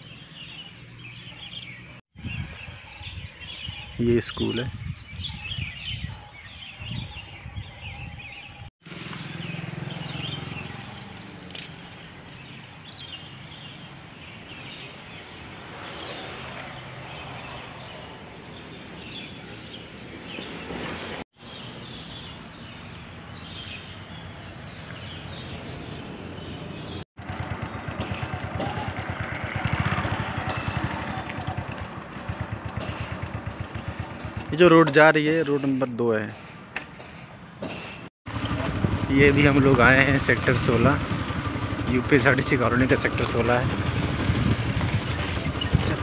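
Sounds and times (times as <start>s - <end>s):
traffic noise: 0.0s - 3.9s, 8.3s - 46.0s
motorcycle engine: 8.8s - 18.2s, 25.8s - 35.4s, 38.3s - 46.0s.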